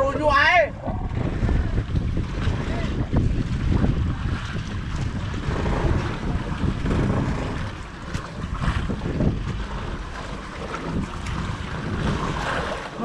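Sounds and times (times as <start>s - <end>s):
steady low rumble: 0.0s - 13.0s
waves washing against boat hull: 0.0s - 13.0s
wind buffeting microphone: 0.0s - 13.0s.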